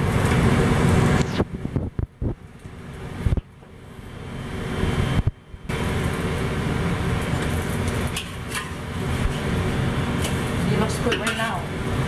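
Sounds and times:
pancake sizzling in a wok: 5.7 - 12.0.

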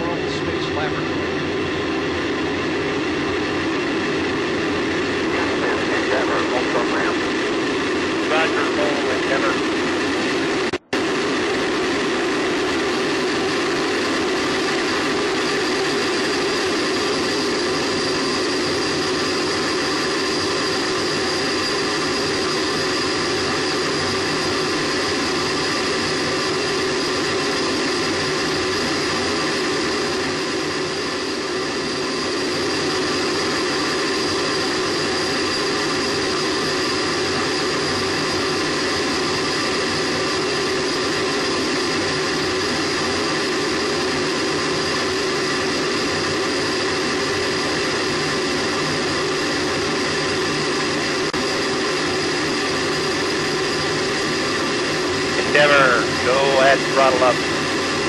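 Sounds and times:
whining tones: 1.4 - 58.0
rocket booster roaring: 55.2 - 57.9.

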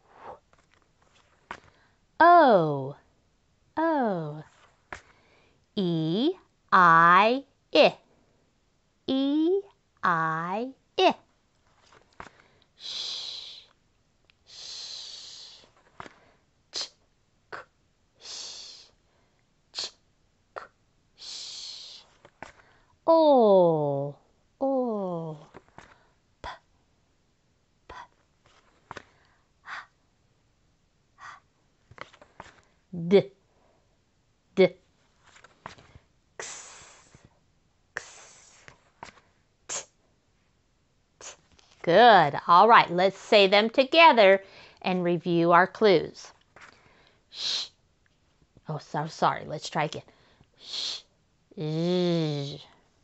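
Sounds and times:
woman making sh hiss: 12.8 - 13.8, 14.4 - 15.8, 16.7 - 17.0, 17.6 - 19.0, 19.8 - 20.0, 20.6 - 22.2, 36.4 - 37.3, 38.0 - 40.0, 41.2 - 41.5, 47.3 - 47.8, 50.6 - 52.7.

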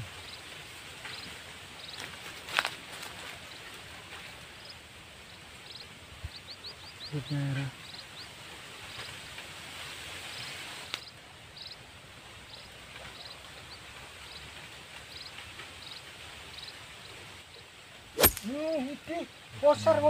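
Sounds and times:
steady hiss: 0.0 - 20.0
short high chirp: 18.2 - 18.5
sharp click: 18.2 - 18.6.

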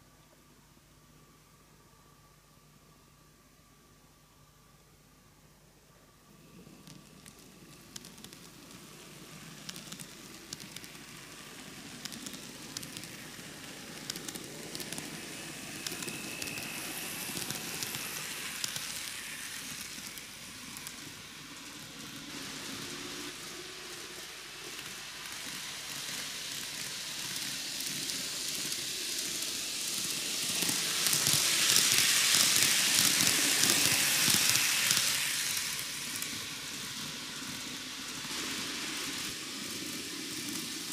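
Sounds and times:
model train wheels rushing on rails: 6.2 - 40.9
clicks of wheels on rail joints: 13.9 - 19.2.

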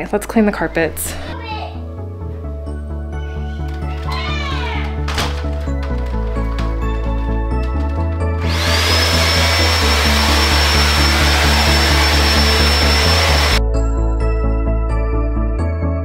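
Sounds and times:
carpet cleaner motor whine: 7.0 - 13.6
loud rushing noise: 8.5 - 13.6.

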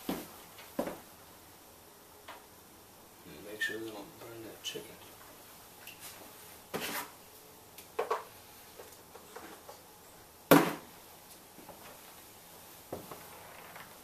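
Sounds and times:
loud sharp knock: 10.5 - 10.8.

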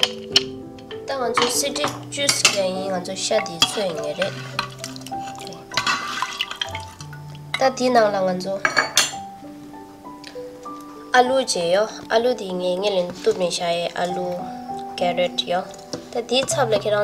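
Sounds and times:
soft piano music: 0.0 - 17.0
metal ladle scraping a pot: 1.8 - 7.7.

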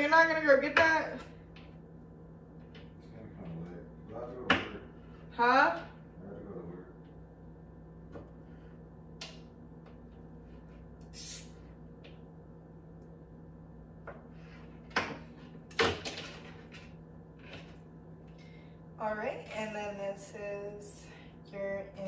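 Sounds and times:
steady low hum: 0.0 - 22.0
kitchen knocks and clunks: 14.9 - 16.9.

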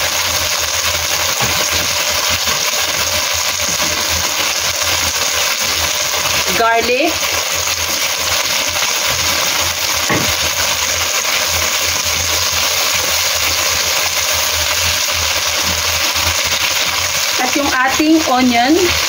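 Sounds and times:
food sizzling in hot oil: 0.0 - 19.0.

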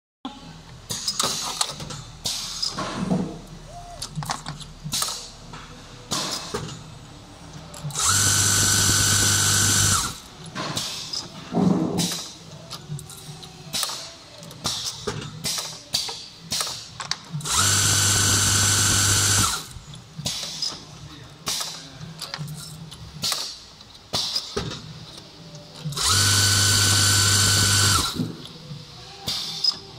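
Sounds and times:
spindles winding with loud whine: 7.9 - 10.2, 17.4 - 19.8, 26.0 - 28.2.

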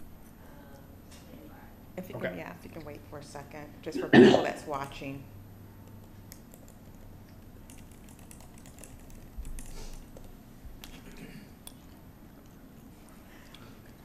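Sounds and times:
keyboard typing clicks: 5.9 - 11.0.

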